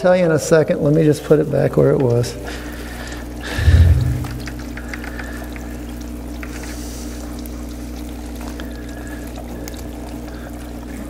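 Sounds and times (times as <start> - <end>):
steady electric hum: 0.0 - 11.0
water bubbling and trickling: 3.2 - 11.0
faint ticks: 4.4 - 6.7.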